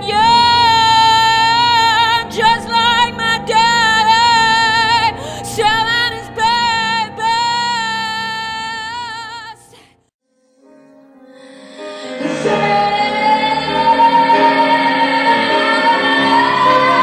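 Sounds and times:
woman singing high note with vibrato: 0.0 - 9.8, 11.3 - 17.0
musical accompaniment: 10.4 - 17.0.

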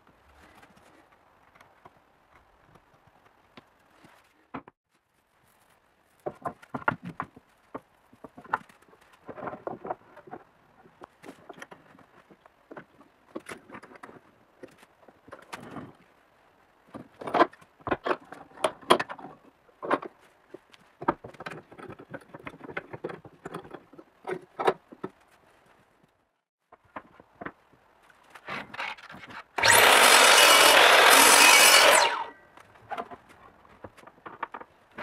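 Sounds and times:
power tool running: 29.6 - 32.3.

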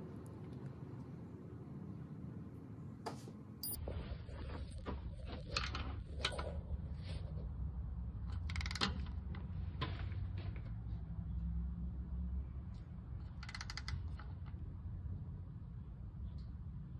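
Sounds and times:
torque wrench ratcheting and clicking: 13.3 - 14.3.

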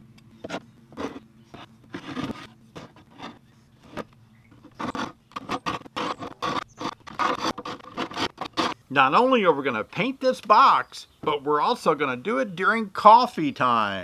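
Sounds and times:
hive tool scraping wood: 0.4 - 8.8.

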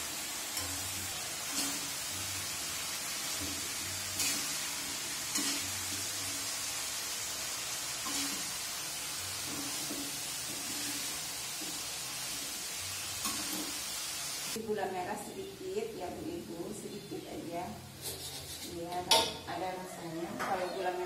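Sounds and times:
vegetables sizzling in a wok: 0.0 - 14.6.

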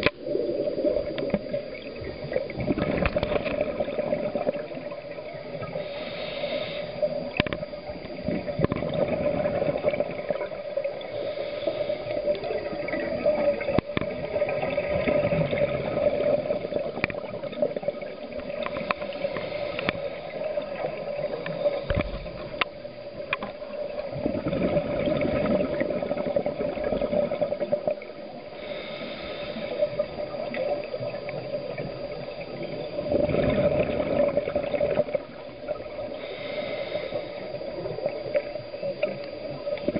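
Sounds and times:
gurgle of exhaled bubbles: 0.0 - 5.9, 7.0 - 28.6, 29.6 - 36.3
steady hum: 0.0 - 39.9
hissing regulator inhale: 3.0 - 9.2, 10.8 - 13.6, 18.5 - 24.1, 28.4 - 31.0, 31.9 - 39.9.

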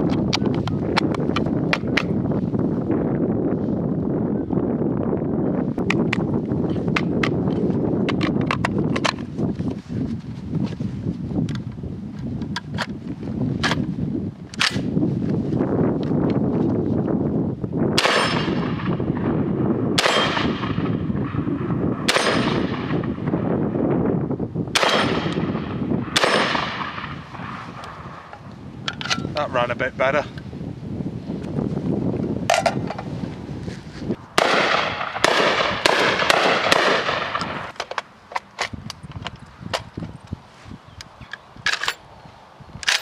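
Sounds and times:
shotgun shots: 18.0 - 19.2, 20.0 - 21.4, 22.0 - 23.2, 24.8 - 28.3, 34.4 - 37.8.

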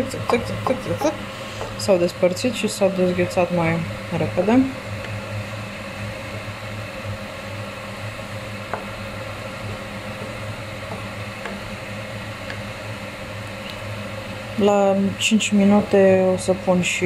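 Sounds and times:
steady hum and hiss: 0.0 - 17.0
spatula tapping a pan: 9.7 - 11.7.

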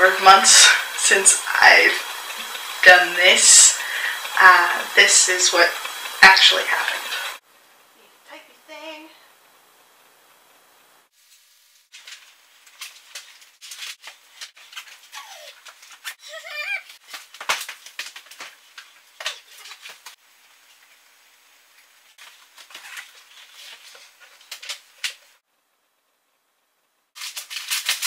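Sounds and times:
pages rustling: 11.2 - 16.2, 16.8 - 20.2, 22.2 - 25.3, 27.2 - 28.0.

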